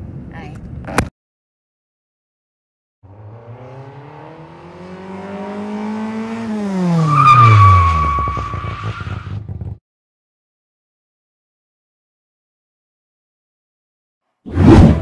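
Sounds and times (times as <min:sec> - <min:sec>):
car engine revving: 0:03.0 - 0:09.8
tyre squeal: 0:07.0 - 0:09.4.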